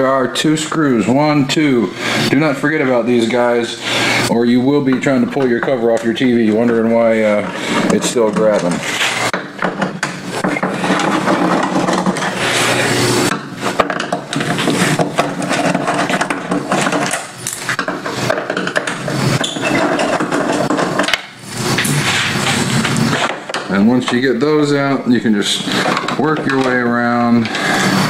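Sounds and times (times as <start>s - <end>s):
camera rubbing against clothing: 7.2s - 9.4s.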